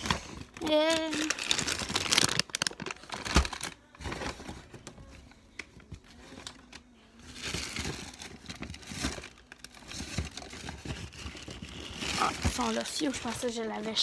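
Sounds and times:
crinkling and rustling: 0.0s - 14.0s.

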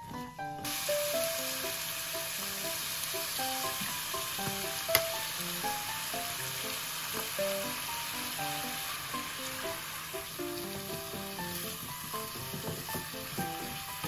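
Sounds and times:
food sizzling in frying pan: 0.6s - 14.0s
utensil knocking pan: 10.8s - 14.0s.

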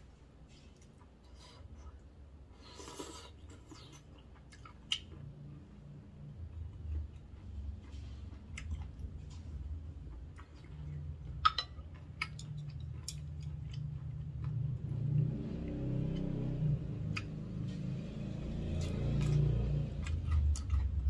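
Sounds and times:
person chewing and swallowing: 2.6s - 5.6s, 6.5s - 14.7s, 20.0s - 21.0s.

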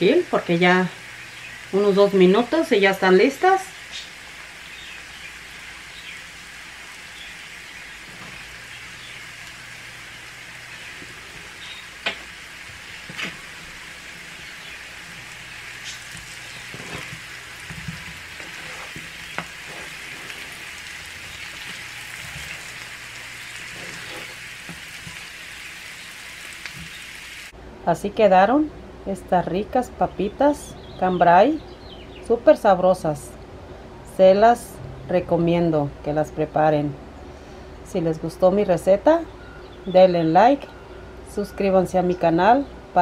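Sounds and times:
potatoes sizzling in skillet: 0.0s - 27.5s
spoon scraping pan: 13.0s - 25.4s.

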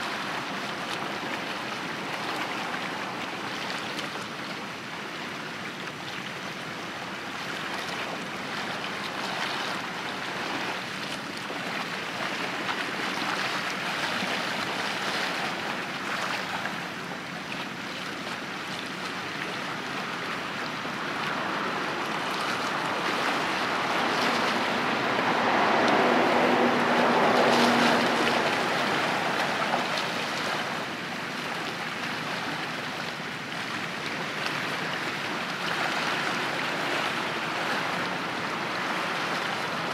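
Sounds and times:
water washing from ship wake: 0.0s - 39.9s
low ship hum: 18.1s - 39.9s.

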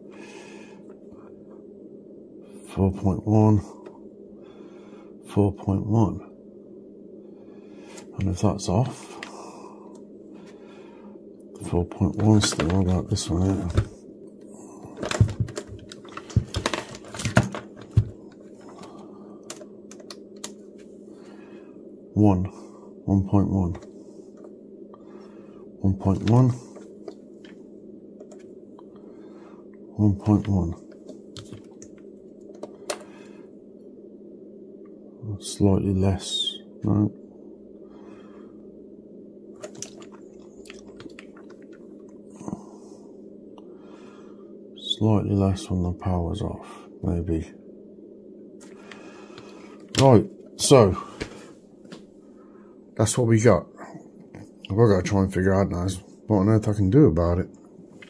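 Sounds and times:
steady low hum: 0.0s - 58.0s
multimeter probes clicking and knocking: 15.0s - 18.8s, 19.4s - 20.6s, 30.9s - 33.1s.

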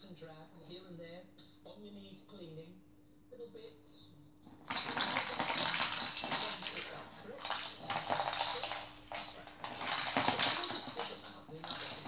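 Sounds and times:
plastic ball toy rattling: 4.5s - 12.0s.

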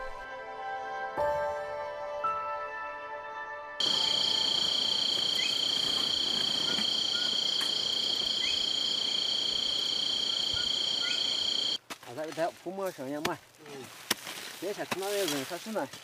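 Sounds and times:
high-pitched insect drone: 3.8s - 11.8s.

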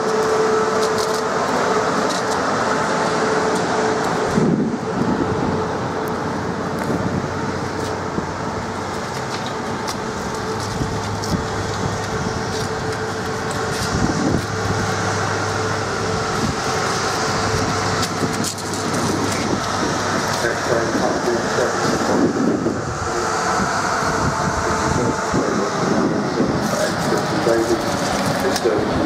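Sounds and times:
electric train motor hum: 0.0s - 29.0s
wheel and rail noise: 0.0s - 29.0s
electrical arcing crackles: 8.8s - 21.4s.

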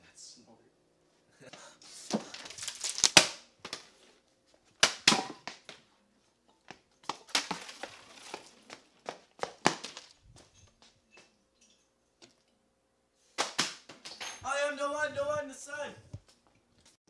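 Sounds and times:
plastic bottle clattering on concrete: 4.8s - 5.8s, 6.7s - 10.2s.

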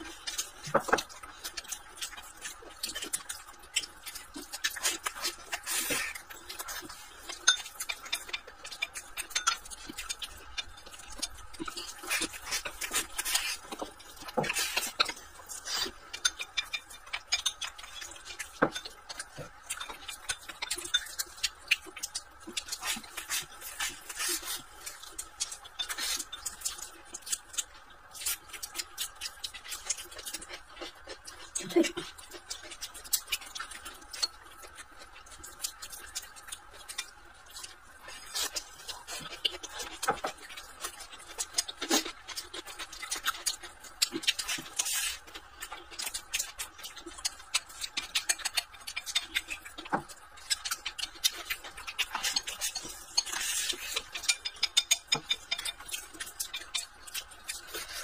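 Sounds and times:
chewing and lip smacks: 0.0s - 58.0s.

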